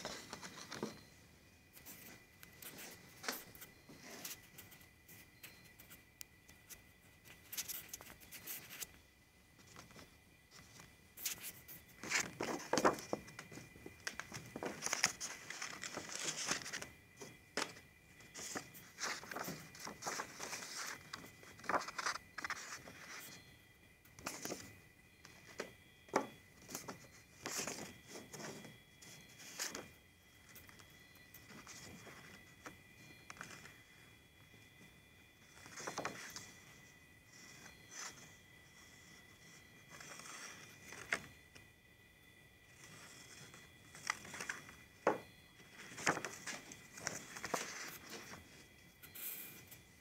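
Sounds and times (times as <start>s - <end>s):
paper scratching and rustling: 0.0s - 1.1s, 1.8s - 6.0s, 7.3s - 8.9s, 10.6s - 16.9s, 17.6s - 23.4s, 25.3s - 29.9s, 35.5s - 36.6s, 37.4s - 41.3s, 42.8s - 48.6s
faint high-pitched whine: 0.0s - 50.0s.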